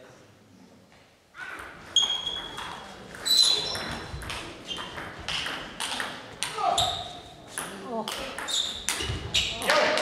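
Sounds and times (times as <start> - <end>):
shoes squeaking on floor: 1.4 - 7.4, 8.4 - 9.7.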